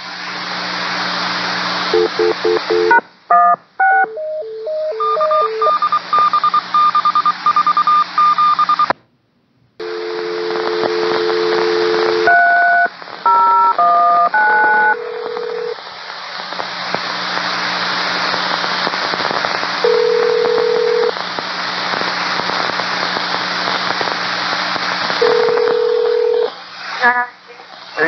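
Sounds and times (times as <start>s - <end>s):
radio hiss and crackle: 0.0s - 3.2s, 9.8s - 28.0s
touch-tone digits dialed: 2.0s - 8.9s
two-tone dial tone: 2.0s - 8.9s, 9.8s - 15.8s, 19.8s - 21.2s, 25.2s - 26.5s.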